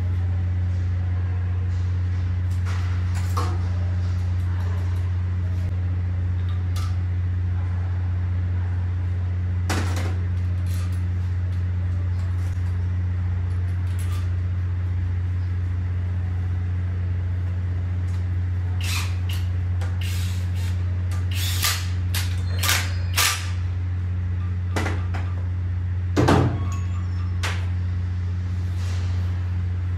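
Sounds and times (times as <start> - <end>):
metal tools clinking: 26.6 - 27.4.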